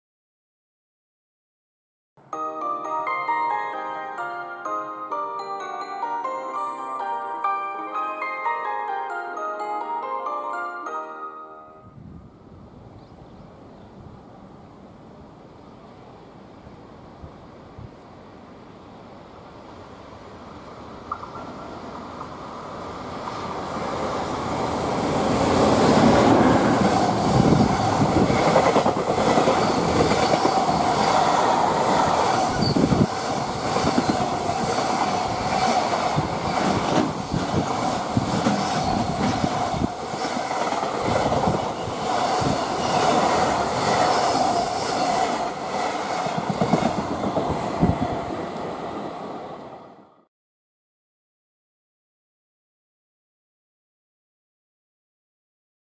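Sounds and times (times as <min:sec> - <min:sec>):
freight train passing: 0:02.4 - 0:50.2
wheels clacking over rail joints: 0:23.2 - 0:47.7.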